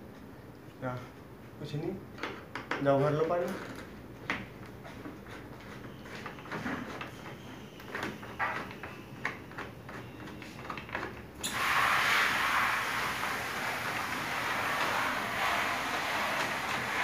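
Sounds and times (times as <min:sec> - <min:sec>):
loud steady hiss: 0:11.4 - 0:17.0.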